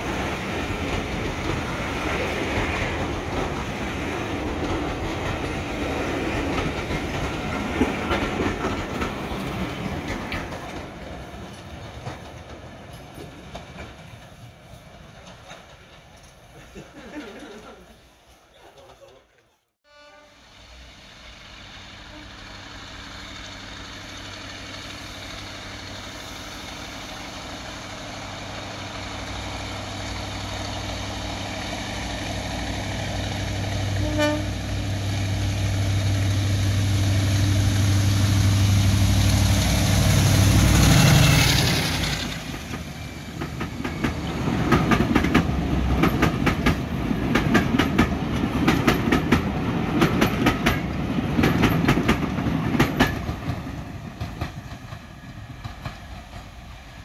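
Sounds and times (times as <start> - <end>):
diesel locomotive engine passing: 0.0 - 17.9, 19.9 - 57.0
wheels clattering over rail joints: 0.2 - 17.6, 40.6 - 56.8
train horn toot: 19.8 - 20.5, 22.0 - 22.5, 34.0 - 34.6.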